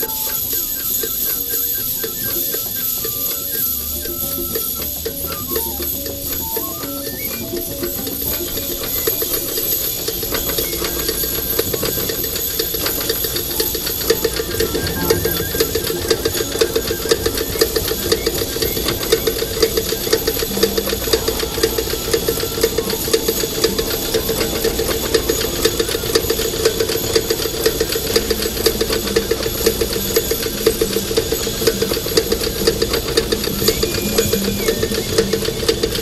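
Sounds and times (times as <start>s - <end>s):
droning hum: 0.0s - 36.0s
fast machine clatter: 0.0s - 36.0s.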